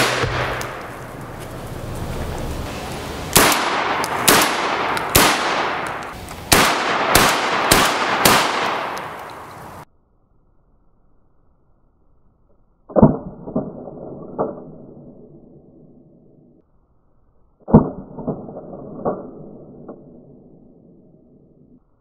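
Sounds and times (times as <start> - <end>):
shotgun shots booming: 0.0 - 1.1, 3.3 - 9.8.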